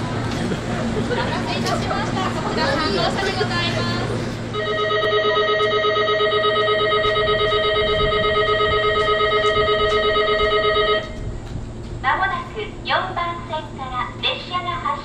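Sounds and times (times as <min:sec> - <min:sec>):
electric bell ringing: 0:04.6 - 0:11.1.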